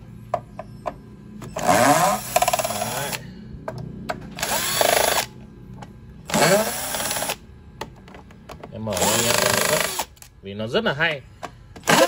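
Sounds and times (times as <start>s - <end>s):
cordless drill motor whine: 1.4s - 3.2s, 4.4s - 5.3s, 8.9s - 10.2s.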